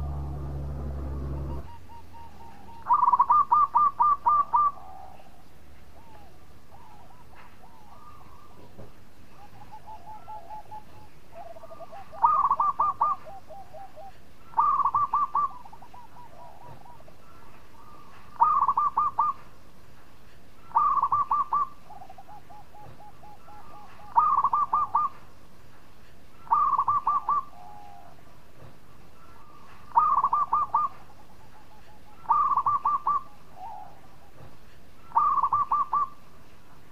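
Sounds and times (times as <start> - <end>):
dove cooing: 0.0 - 19.5, 20.6 - 25.3, 26.4 - 28.2, 29.2 - 34.4, 35.0 - 36.3.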